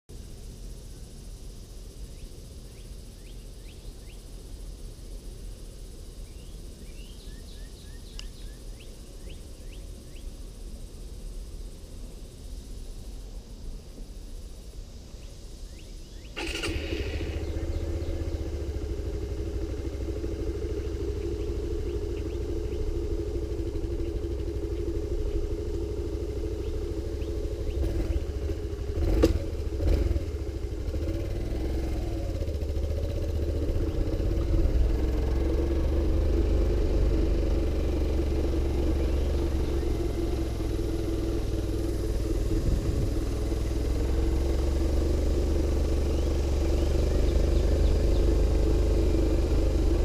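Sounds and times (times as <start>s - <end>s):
motorcycle engine idling: 15.7s - 50.0s
motorcycle pulling away: 16.1s - 50.0s
motorcycle starter whir: 16.2s - 50.0s.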